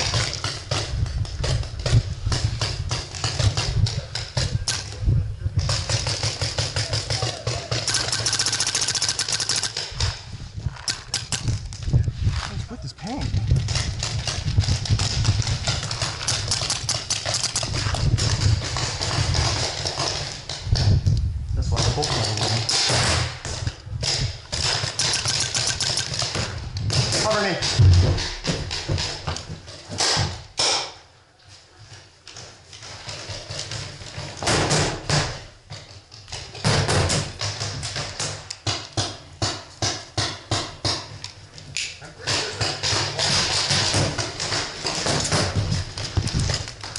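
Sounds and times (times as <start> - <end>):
running footsteps on dirt: 9.8 - 21.1
gear clattering: 24.5 - 26.5
paintball markers popping: 24.6 - 26.5.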